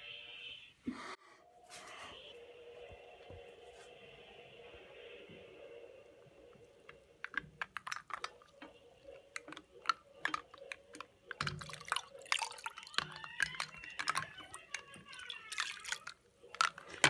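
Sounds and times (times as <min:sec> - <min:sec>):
liquid sloshing and dripping: 0:06.9 - 0:17.0.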